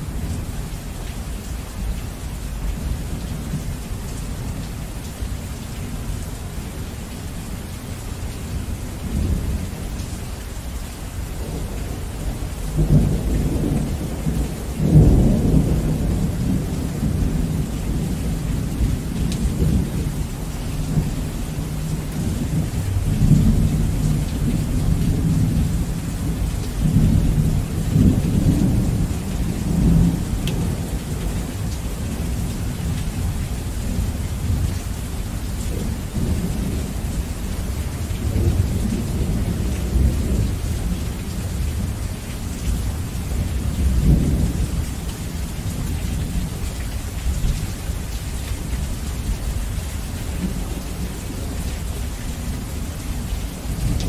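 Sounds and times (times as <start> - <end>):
heavy rain: 0.0 - 54.0
low rolling thunder: 11.4 - 46.6.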